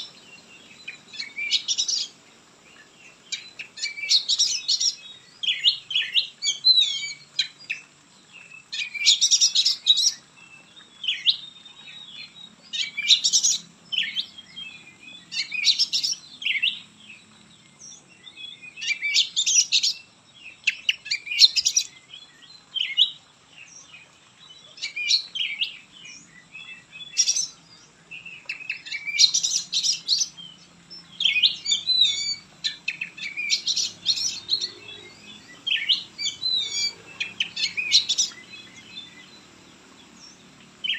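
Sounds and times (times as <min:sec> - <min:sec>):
songbird whistling and chattering: 0:28.4 - 0:39.3.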